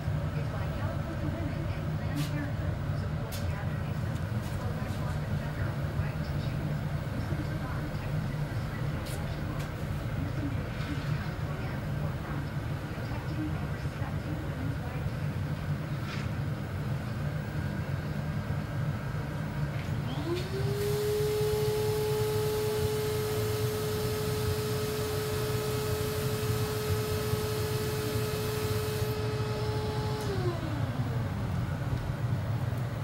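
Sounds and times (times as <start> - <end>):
gas furnace roaring: 0.0 - 33.0
electric motor whining: 20.1 - 31.3.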